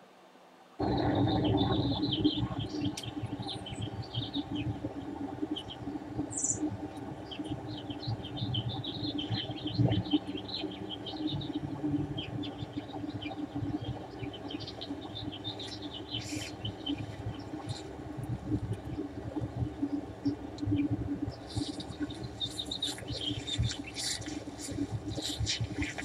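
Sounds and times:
steady low rumble: 0:00.8 - 0:26.0
small animals chirping and squeaking: 0:21.4 - 0:26.0.

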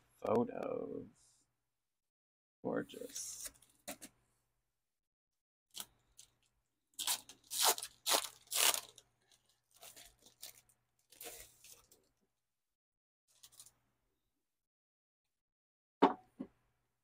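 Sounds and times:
packaging crinkling and rustling: 0:07.0 - 0:12.0.

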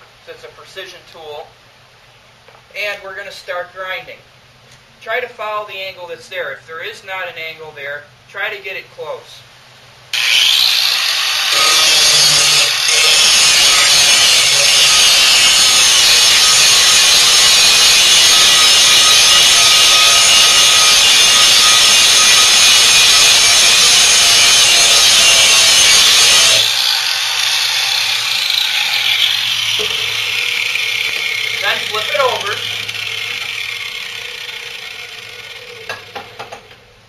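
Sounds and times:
angle grinder grinding metal: 0:10.2 - 0:36.8.

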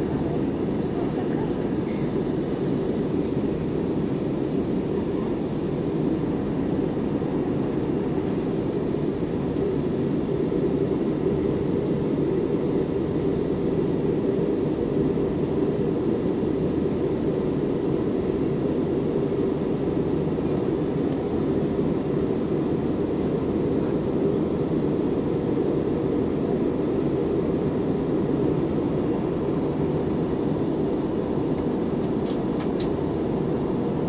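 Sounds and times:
jet airliner cabin drone: 0:00.0 - 0:34.0.

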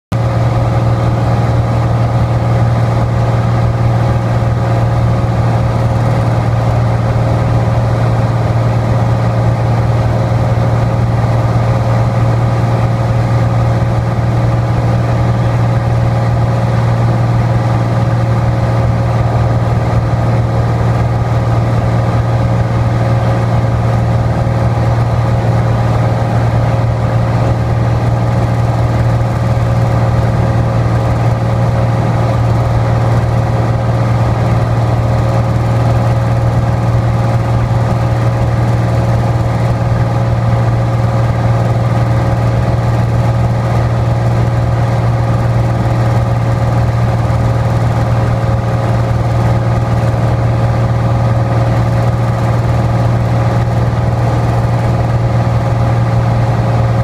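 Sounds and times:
aircraft engine droning in cabin: 0:00.1 - 0:57.0.

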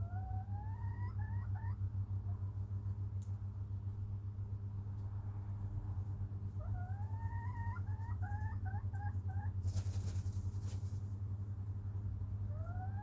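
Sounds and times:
chicken calling: 0:00.0 - 0:02.5, 0:06.5 - 0:09.6, 0:12.5 - 0:13.0
low hum: 0:00.0 - 0:13.0
rooster wing-flapping: 0:09.6 - 0:11.1.

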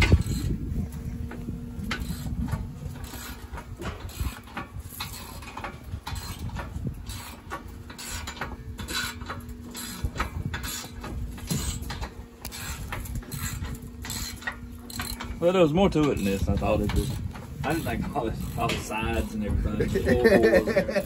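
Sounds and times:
wrench and ratchet clinking: 0:11.5 - 0:15.4.

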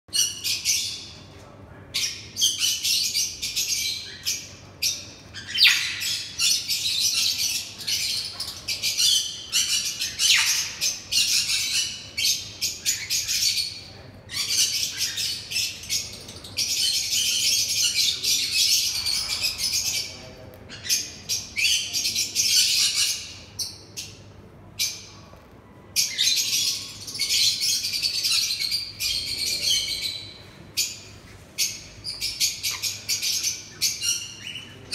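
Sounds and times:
parrots squawking raspily: 0:09.1 - 0:11.9.

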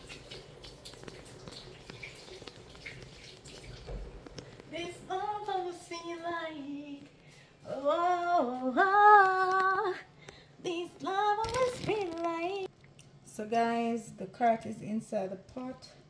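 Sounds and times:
woman singing unaccompanied: 0:04.7 - 0:12.7.

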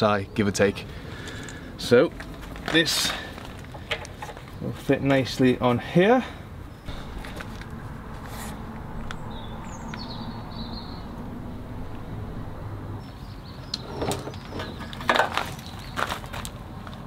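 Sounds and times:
footsteps on gravel: 0:02.1 - 0:04.9, 0:06.9 - 0:09.1, 0:15.0 - 0:17.0.

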